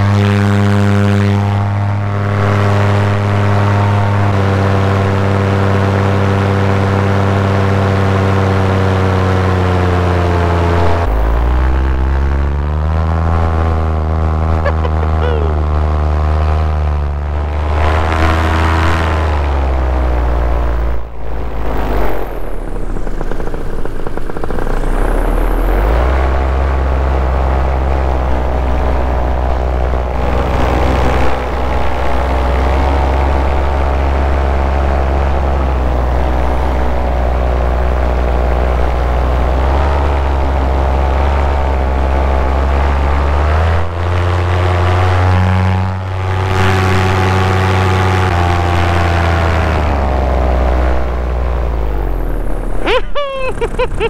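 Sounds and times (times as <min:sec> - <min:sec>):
paramotor engine and propeller: 0:00.0 - 0:54.0.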